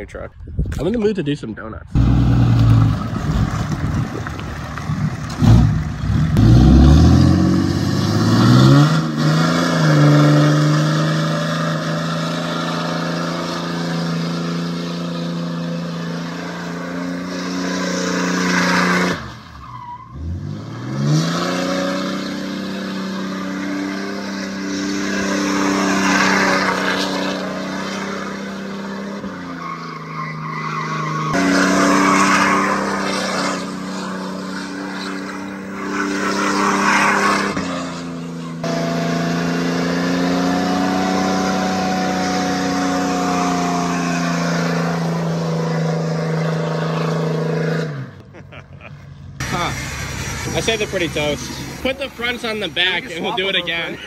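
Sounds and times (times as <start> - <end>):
engine revving high: 5.4 - 19.4, 20.1 - 48.2.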